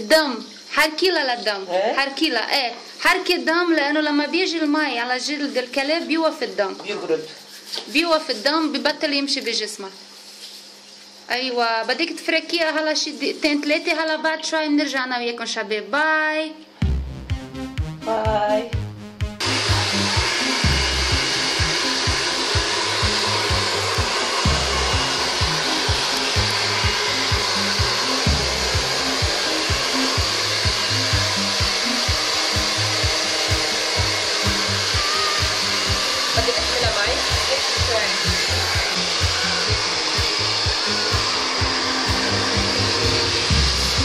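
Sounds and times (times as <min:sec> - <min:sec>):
hair dryer running: 0:19.4 - 0:44.0.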